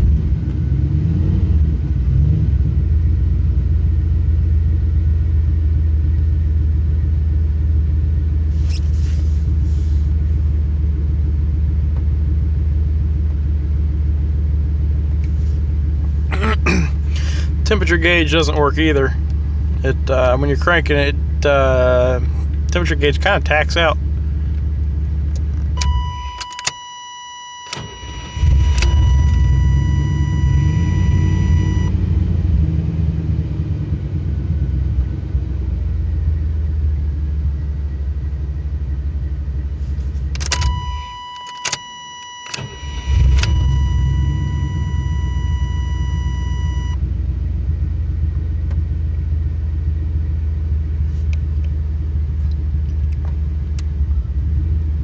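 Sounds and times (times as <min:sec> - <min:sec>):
car engine idling and restarting: 0:00.0 - 0:55.0
clicks: 0:25.3 - 0:26.8, 0:40.2 - 0:43.7
electronic warning chime: 0:25.8 - 0:32.0, 0:40.6 - 0:47.0.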